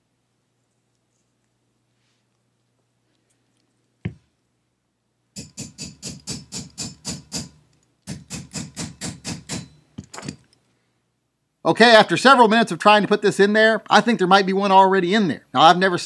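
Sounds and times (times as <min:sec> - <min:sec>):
tool tapping quickly: 0:05.4 - 0:10.4.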